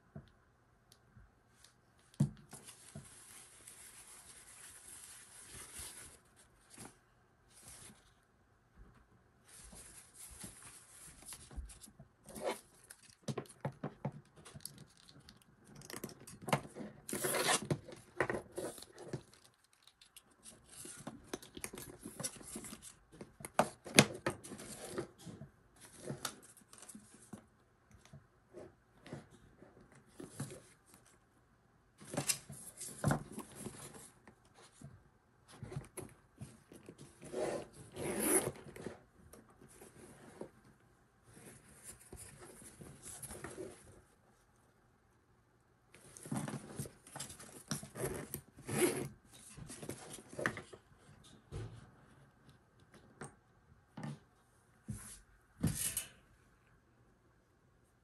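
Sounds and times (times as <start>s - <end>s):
leather bag rubbing: 37.3s - 38.5s.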